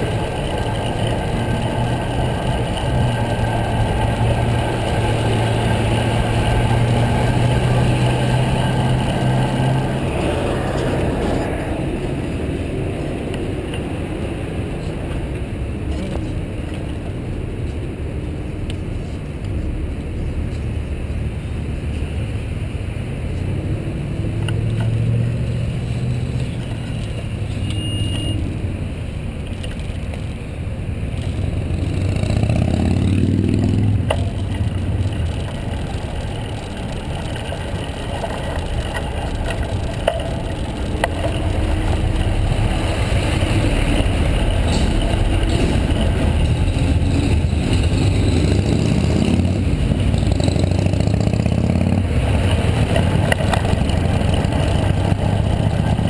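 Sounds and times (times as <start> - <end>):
car accelerating: 0.0 - 15.0, 31.2 - 56.0
car engines idling: 0.0 - 23.2, 28.9 - 56.0.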